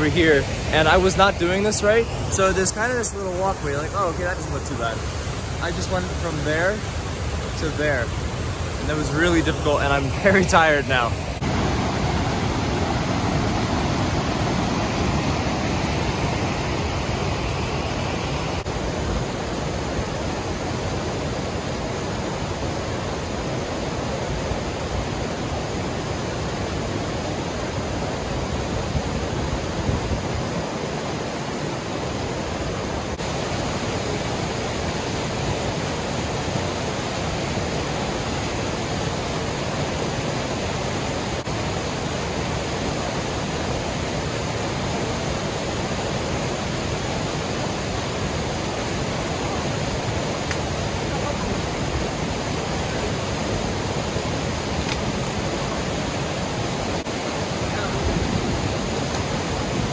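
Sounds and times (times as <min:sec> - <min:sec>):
creek rushing: 0:00.0 - 0:59.9.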